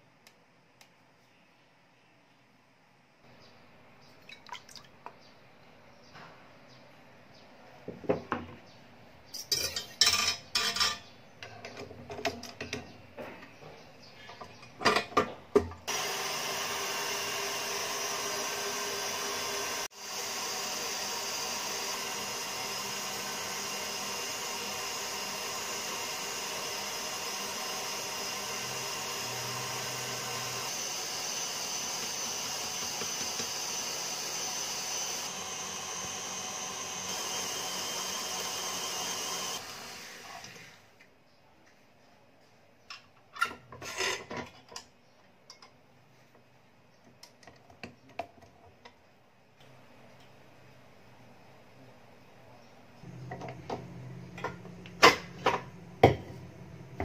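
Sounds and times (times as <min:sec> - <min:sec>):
stand mixer motor running: 0:15.9 - 0:40.7.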